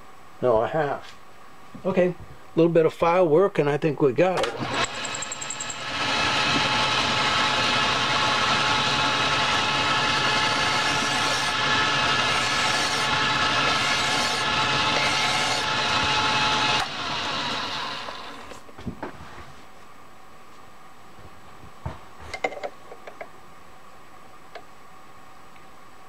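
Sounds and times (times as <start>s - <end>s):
metal lathe whining: 4.6s - 18.6s
hand file on spinning metal: 4.8s - 16.9s.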